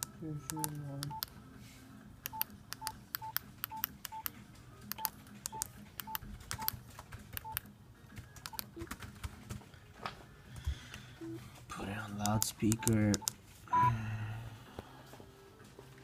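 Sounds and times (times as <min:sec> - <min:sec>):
phone keypad beeps: 0:00.5 - 0:01.3, 0:02.3 - 0:04.3, 0:12.3 - 0:13.9.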